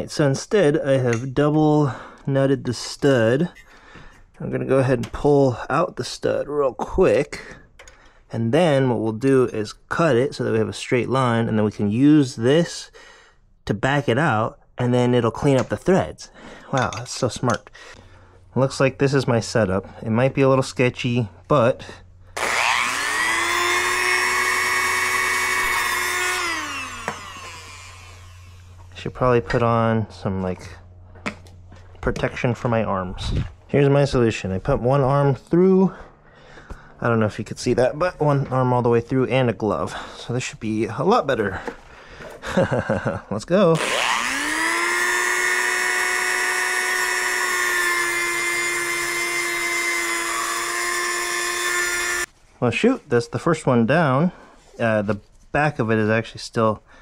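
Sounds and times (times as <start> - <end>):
rotary tool motor whining: 22.4 - 28.9, 43.8 - 52.3.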